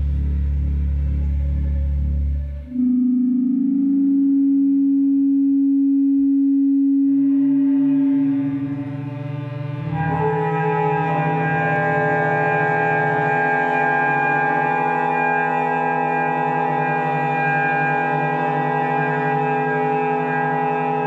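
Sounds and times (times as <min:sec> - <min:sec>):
ensemble holding tones: 0:00.0 - 0:21.0.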